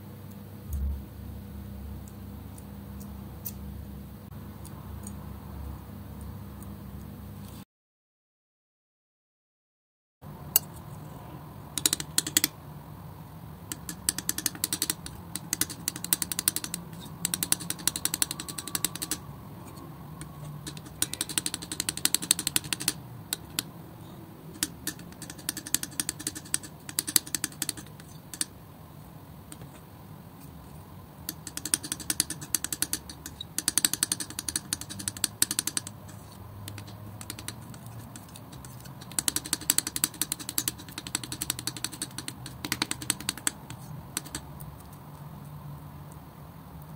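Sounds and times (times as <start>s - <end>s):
palette knife spreading wet paint: 13.8s - 23.7s, 24.5s - 28.5s, 31.3s - 44.9s.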